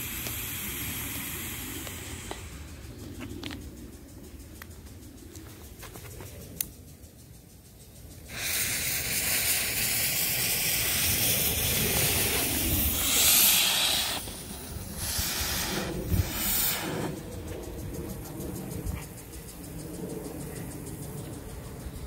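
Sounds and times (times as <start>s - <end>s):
fireworks hissing: 0.0s - 3.6s, 8.0s - 17.8s.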